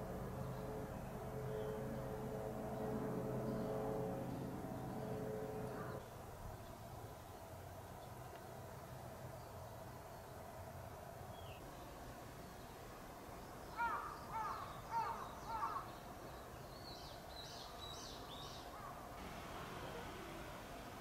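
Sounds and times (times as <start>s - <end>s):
crow cawing: 13.8s - 15.9s.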